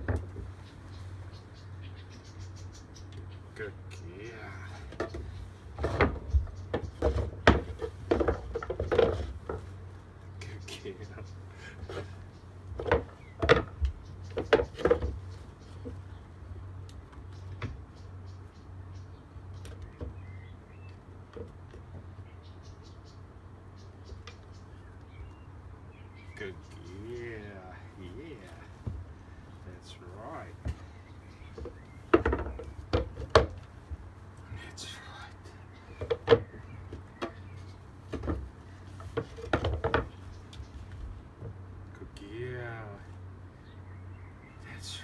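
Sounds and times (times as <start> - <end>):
knocks on wooden deck: 5.0 - 9.6, 31.6 - 33.6.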